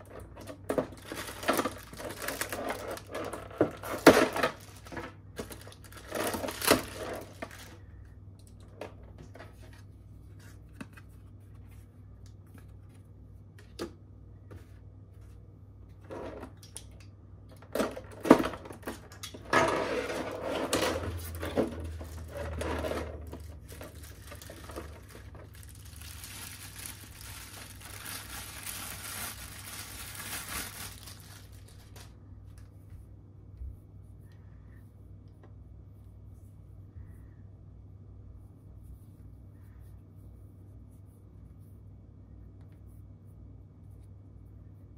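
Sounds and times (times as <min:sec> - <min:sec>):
plastic packaging crinkling: 0:00.0 - 0:07.9, 0:21.0 - 0:32.2.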